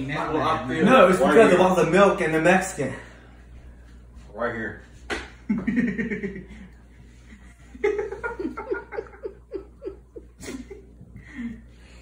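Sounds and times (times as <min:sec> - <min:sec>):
person laughing: 0:07.6 - 0:11.7.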